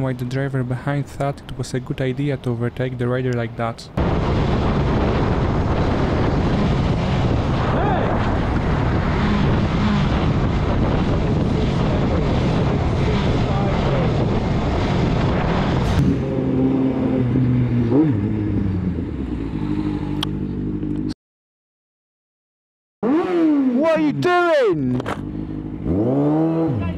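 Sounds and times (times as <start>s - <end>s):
wind rush on microphone: 4.0s - 17.7s
motorcycle engine at speed: 4.0s - 21.2s, 23.0s - 24.2s, 24.8s - 26.9s
motorcycle engine revving: 4.0s - 21.2s, 23.0s - 26.9s.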